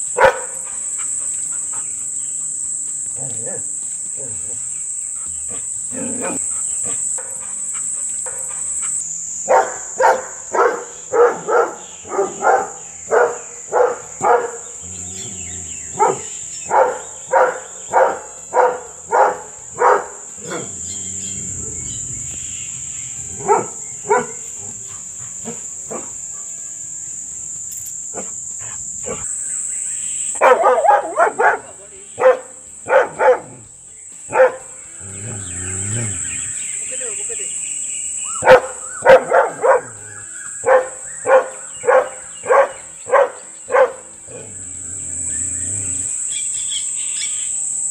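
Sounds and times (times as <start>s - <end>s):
dog barking aggressively: 0.0s - 2.0s, 3.2s - 14.7s, 15.9s - 21.9s, 23.2s - 26.1s, 30.4s - 33.6s, 34.3s - 35.3s, 38.4s - 40.0s, 40.6s - 44.5s
high insect drone: 0.0s - 47.9s.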